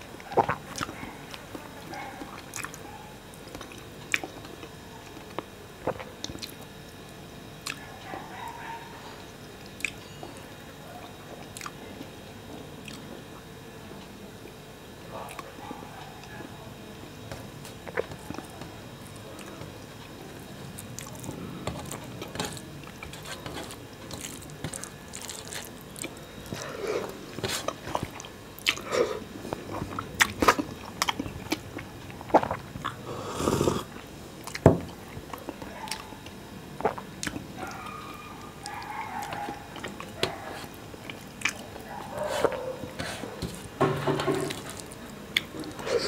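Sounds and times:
person chewing with lip-smacks: 0:00.2 - 0:01.6, 0:02.2 - 0:02.9, 0:03.5 - 0:06.7, 0:07.6 - 0:07.8, 0:09.7 - 0:10.0, 0:11.1 - 0:12.1, 0:12.8 - 0:13.1, 0:20.8 - 0:43.8.

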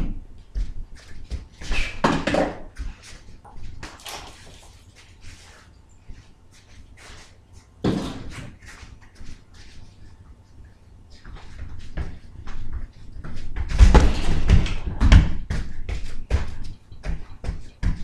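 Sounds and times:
kicks thudding on punching bag: 0:13.5 - 0:16.5.

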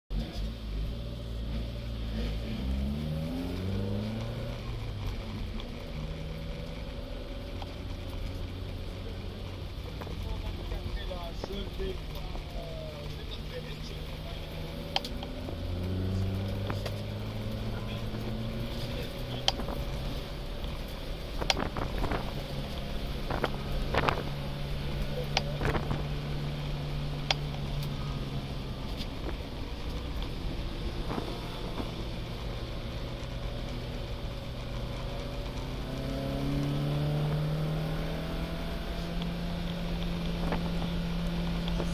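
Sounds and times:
race car engine running hard: 0:00.1 - 0:41.9.

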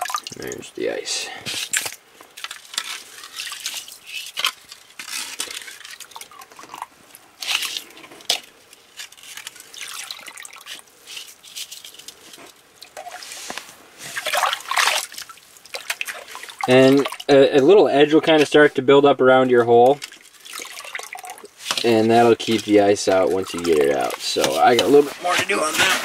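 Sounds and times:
water sloshing and dripping: 0:00.0 - 0:00.6, 0:01.6 - 0:18.8, 0:19.6 - 0:25.0
ice crystals scraping: 0:01.4 - 0:15.4, 0:21.4 - 0:26.0.

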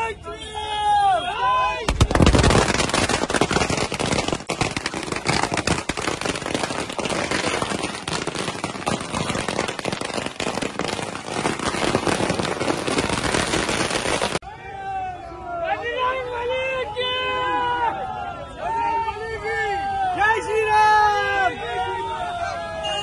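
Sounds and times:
firecrackers banging and crackling: 0:01.9 - 0:14.4.

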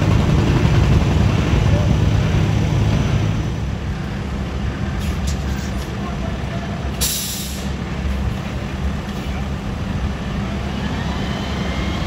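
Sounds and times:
diesel engines rumbling: 0:00.0 - 0:12.0
air brakes hiss: 0:07.0 - 0:07.8.

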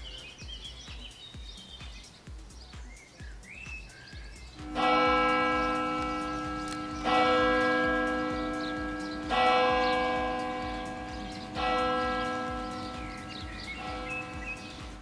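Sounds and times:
church bell tolling: 0:04.6 - 0:15.0.

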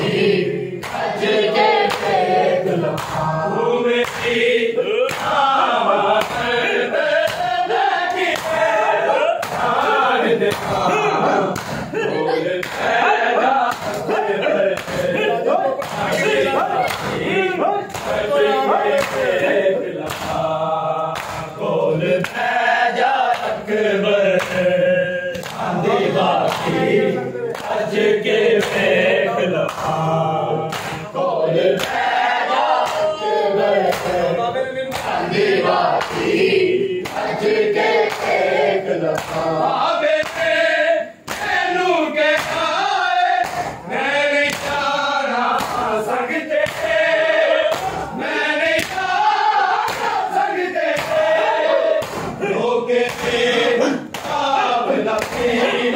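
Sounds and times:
men chanting together: 0:00.0 - 0:55.9
hand strikes on bare chests: 0:00.8 - 0:01.1, 0:02.9 - 0:03.3, 0:04.0 - 0:04.4, 0:05.0 - 0:05.4, 0:06.1 - 0:06.6, 0:07.2 - 0:12.0, 0:12.6 - 0:13.0, 0:13.6 - 0:20.5, 0:21.1 - 0:21.6, 0:23.2 - 0:23.6, 0:29.6 - 0:30.0, 0:30.7 - 0:31.1, 0:33.8 - 0:34.2, 0:40.1 - 0:40.6, 0:41.2 - 0:41.7, 0:42.3 - 0:42.8, 0:43.4 - 0:43.8, 0:44.4 - 0:44.9, 0:45.5 - 0:45.9, 0:46.6 - 0:48.2, 0:48.8 - 0:50.2, 0:50.9 - 0:52.4, 0:53.1 - 0:54.5, 0:55.2 - 0:55.6.

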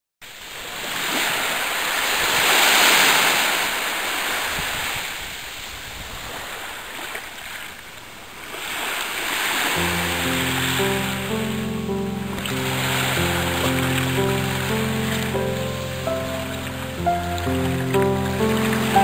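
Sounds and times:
sea waves washing up beach: 0:08.4 - 0:19.0.

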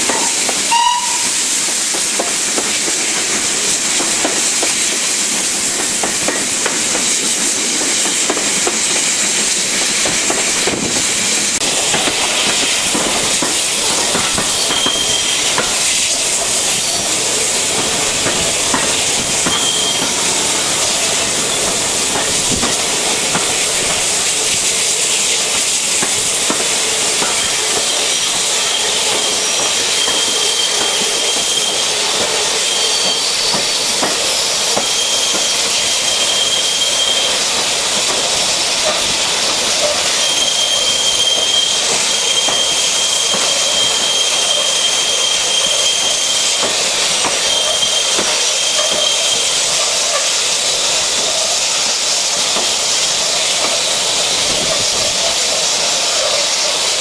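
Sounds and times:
steam hiss: 0:00.0 - 0:57.0
train running noise: 0:00.0 - 0:57.0
thin high squeal: 0:00.2 - 0:01.4, 0:14.5 - 0:16.1, 0:19.5 - 0:21.7, 0:32.6 - 0:37.4, 0:39.8 - 0:46.6, 0:47.4 - 0:50.2.

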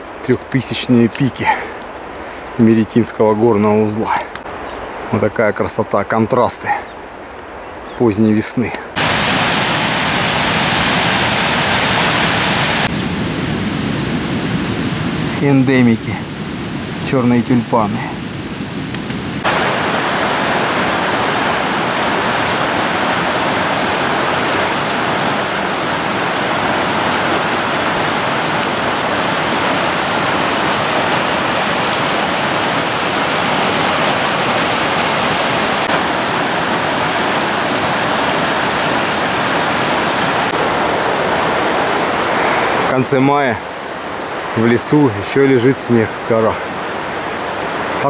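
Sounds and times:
river rushing over rocks: 0:08.9 - 0:12.9, 0:19.4 - 0:48.0.

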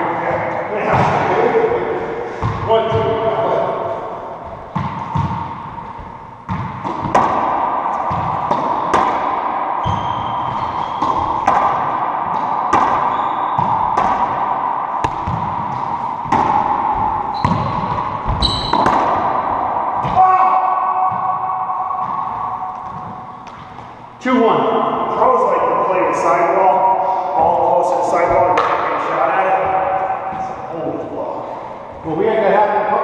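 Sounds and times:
rubber ball smacking off racquets: 0:06.5 - 0:19.4
sneaker squeaks on floor: 0:09.8 - 0:11.4, 0:13.0 - 0:13.8, 0:17.3 - 0:19.0.

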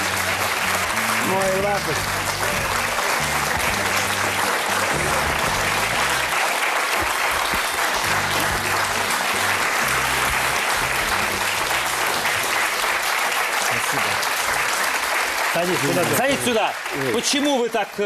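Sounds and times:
background music bass line: 0:00.0 - 0:06.4, 0:07.2 - 0:13.1
audience applauding: 0:00.0 - 0:18.0.

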